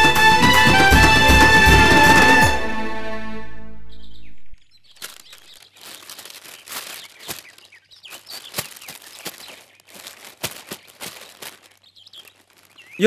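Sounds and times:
held music chord: 0:00.0 - 0:04.0
birds chirping: 0:03.7 - 0:13.0
leaves crackling and rustling: 0:04.8 - 0:13.0.

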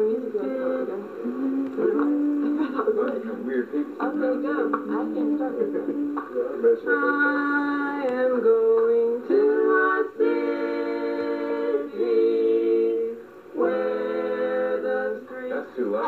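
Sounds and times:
people singing in harmony: 0:00.0 - 0:16.0.

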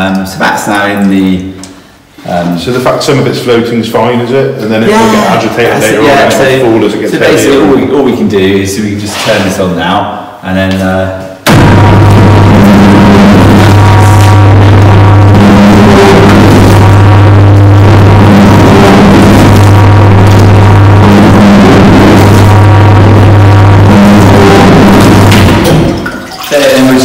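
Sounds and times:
motor humming: 0:12.0 - 0:26.0.

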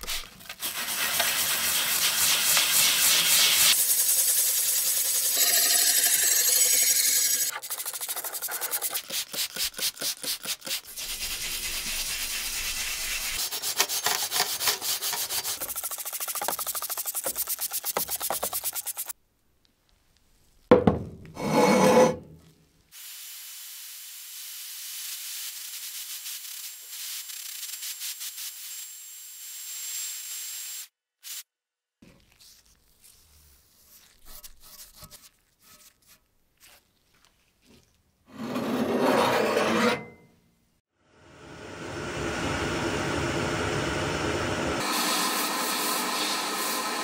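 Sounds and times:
abrasive scraping on steel blade: 0:03.6 - 0:07.6, 0:21.4 - 0:22.5, 0:38.3 - 0:40.3.

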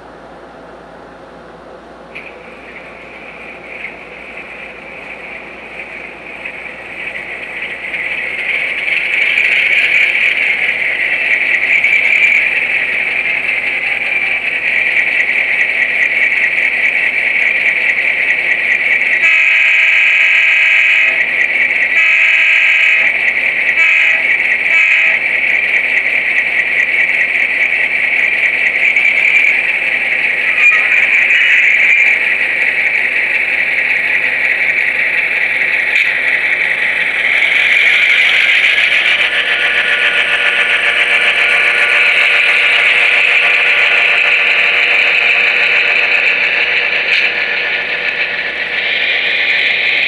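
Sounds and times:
model diesel engine sound: 0:02.1 - 0:50.0
locomotive horn blasts: 0:19.2 - 0:21.2, 0:21.9 - 0:23.1, 0:23.8 - 0:25.2.

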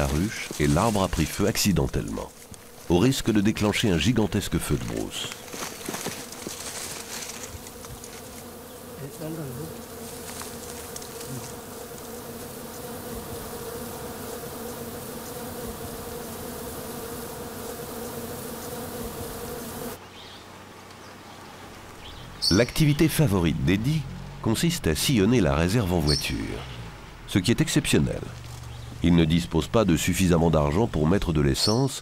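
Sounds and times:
honeybees buzzing: 0:00.0 - 0:31.8.

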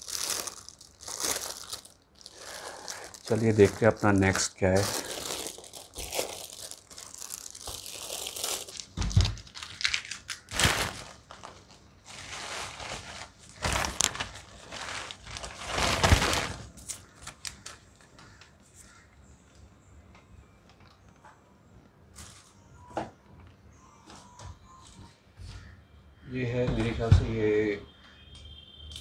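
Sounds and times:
plastic packaging crinkling: 0:00.0 - 0:18.4.

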